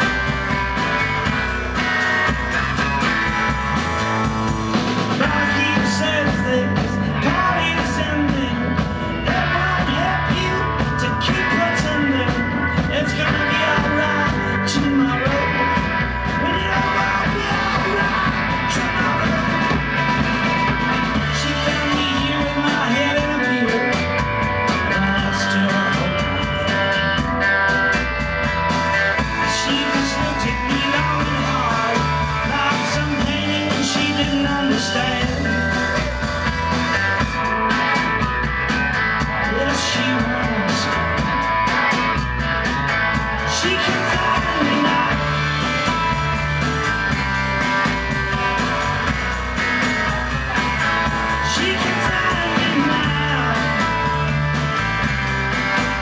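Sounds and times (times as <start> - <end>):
drum kit: 0.0 - 56.0
electric guitars: 0.0 - 56.0
man singing: 5.0 - 27.1, 29.1 - 36.6, 39.2 - 41.4, 43.4 - 46.3, 50.5 - 54.5.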